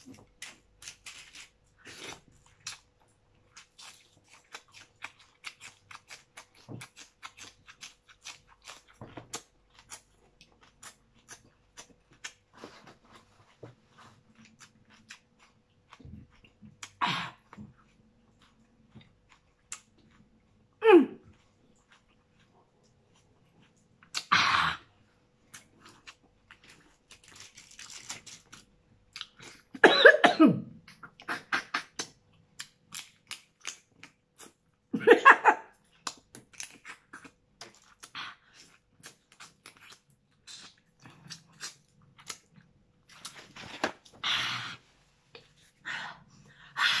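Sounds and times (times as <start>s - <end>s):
wet chewing and smacking: 0.0s - 24.3s, 30.9s - 34.9s, 35.7s - 44.2s
person coughing: 29.8s - 30.8s.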